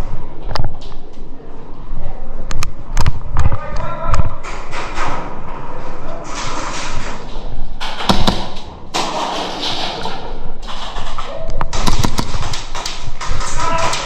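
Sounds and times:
sharp cracks: 6.4 - 14.0.

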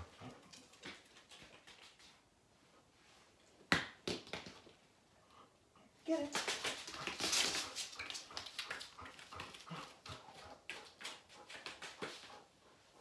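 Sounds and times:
dog footsteps on foam mats: 0.0 - 2.4, 6.2 - 12.5.

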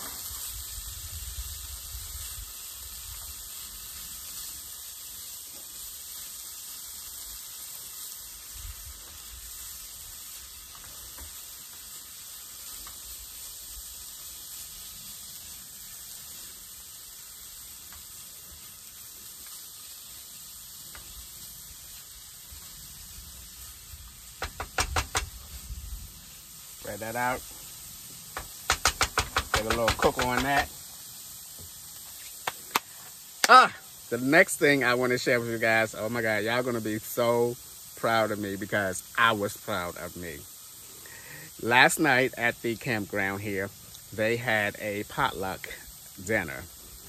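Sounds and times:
food sizzling in a pan: 0.0 - 47.0
utensil knocking against pan: 24.4 - 25.3, 28.4 - 30.7.

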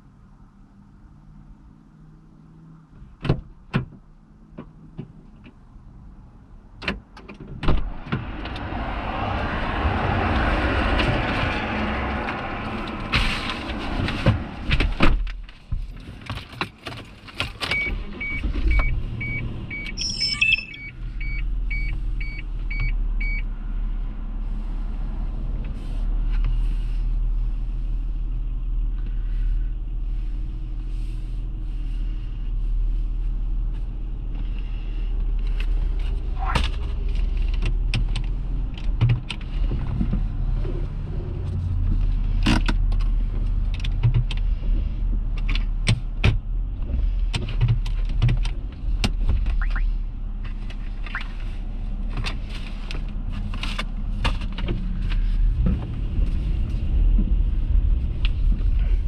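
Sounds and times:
car warning chime beeping: 17.8 - 23.4, 49.6 - 49.8.

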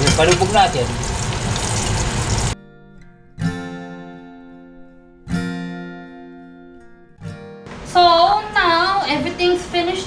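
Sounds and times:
fish frying in hot oil: 0.0 - 2.6
acoustic guitar strumming: 2.6 - 9.7.

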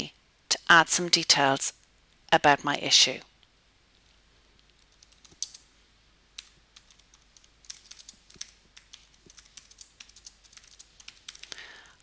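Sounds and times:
keyboard typing clicks: 4.8 - 5.6, 6.4 - 11.6.

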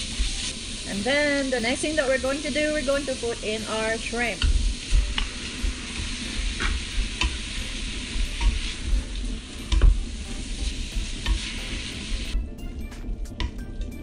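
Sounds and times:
food sizzling in hot oil: 0.0 - 14.0
spatula scraping a pan: 4.6 - 9.9.

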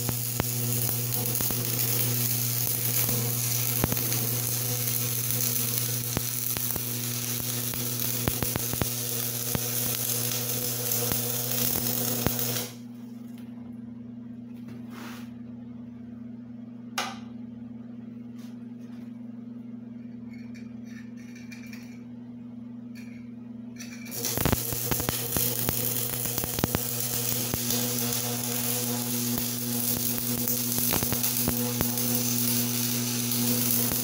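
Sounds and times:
welding arc crackling and sizzling: 0.0 - 12.9, 23.8 - 34.0
arc welder humming: 0.0 - 13.7, 23.0 - 34.0.

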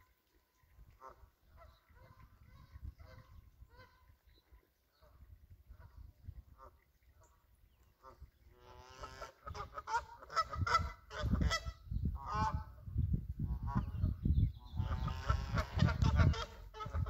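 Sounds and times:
wind rumble on microphone: 0.7 - 17.0
birds honking: 8.0 - 12.6, 14.7 - 17.0.

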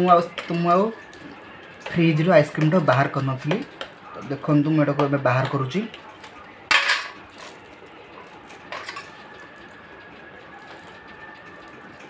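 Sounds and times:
knife clattering onto metal plate: 6.7 - 7.2.

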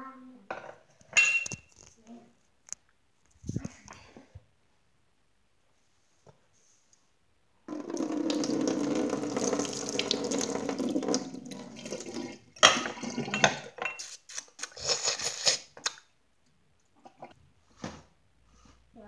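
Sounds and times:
water running: 7.7 - 13.9.

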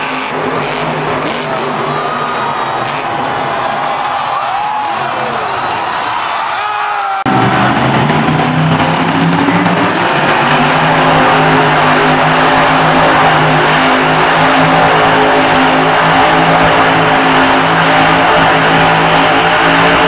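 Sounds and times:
monster truck engine revving: 0.0 - 20.0.

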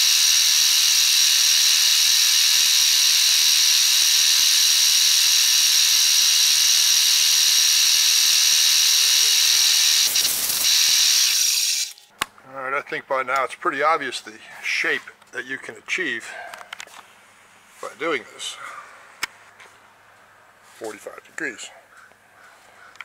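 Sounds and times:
end mill cutting steel whine: 0.0 - 12.0.

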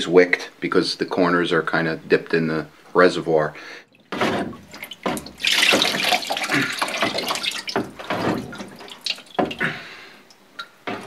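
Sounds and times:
liquid splashing off metal: 3.9 - 11.0
water trickling and dripping: 3.9 - 11.0.

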